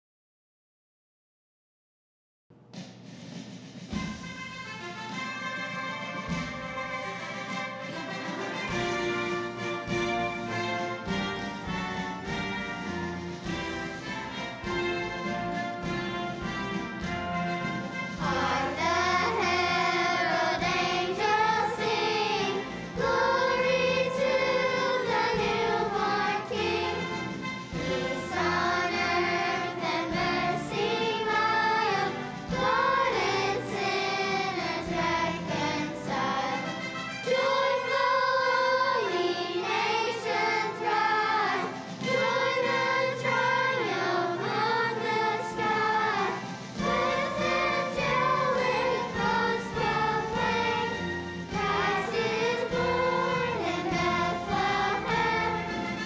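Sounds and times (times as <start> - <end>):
children's choir singing: 5.0 - 56.0.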